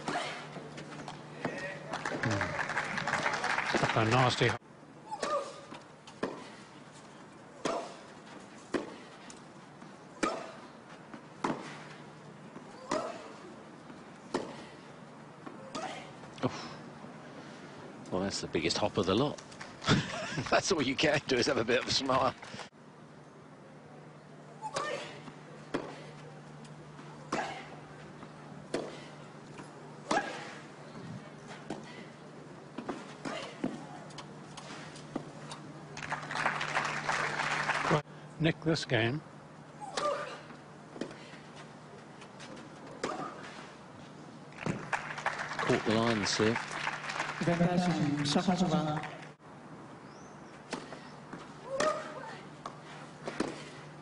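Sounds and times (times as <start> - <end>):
tennis rackets hitting ball: 10.2 - 10.6, 51.7 - 53.7.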